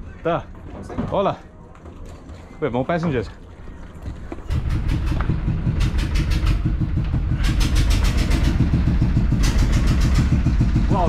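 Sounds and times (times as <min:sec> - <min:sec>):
rapid uneven clatter: 0:03.8 - 0:11.0
boat engine idling: 0:04.1 - 0:11.0.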